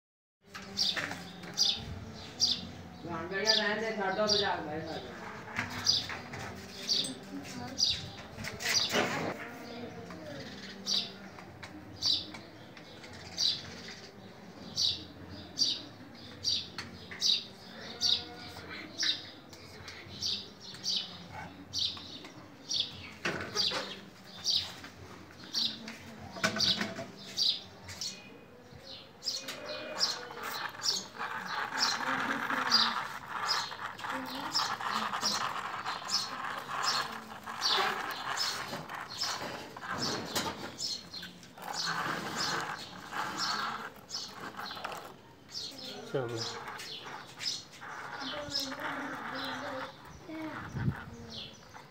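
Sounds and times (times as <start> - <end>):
small bird chirping: 29.3 - 51.9
loud rustling: 29.9 - 51.8.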